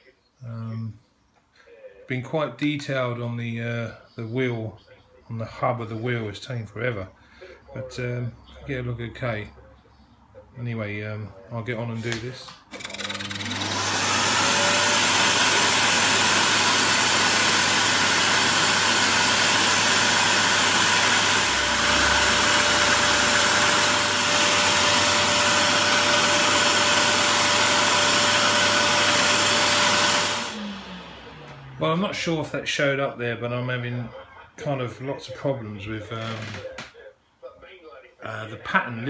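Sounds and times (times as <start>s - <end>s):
scroll saw cutting wood: 12.7s - 32.0s, 36.1s - 36.6s.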